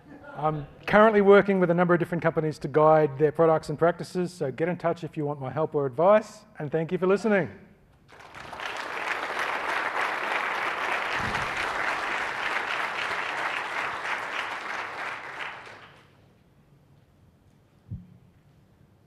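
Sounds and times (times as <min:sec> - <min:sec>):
audience applauding: 0:08.1 - 0:16.2
low thump: 0:11.2 - 0:11.6.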